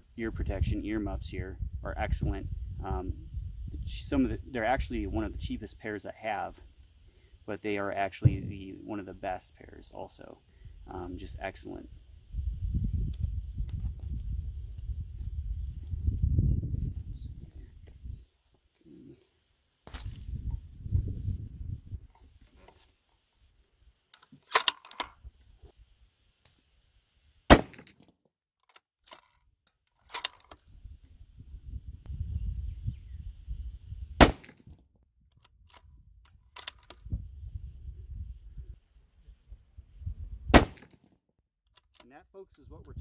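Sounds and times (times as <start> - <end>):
rifle bolt clicks: 24.2 - 25.1, 30.1 - 30.6, 36.6 - 37.0
rifle shots: 27.5 - 28.0, 34.2 - 34.7, 40.6 - 41.0.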